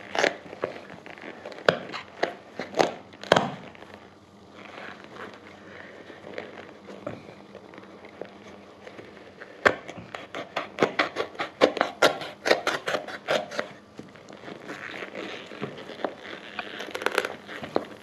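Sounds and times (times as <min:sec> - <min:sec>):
rustling and scraping: 0:00.0 - 0:18.0
sharp cracks and snaps: 0:00.1 - 0:04.1
knife cutting rubber sole: 0:09.4 - 0:13.8.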